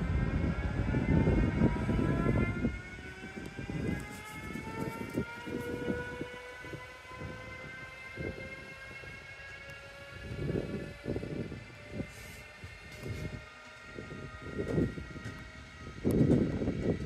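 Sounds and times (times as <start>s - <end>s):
low rumble: 0.0s - 5.3s
electric locomotive motors whining: 0.0s - 17.0s.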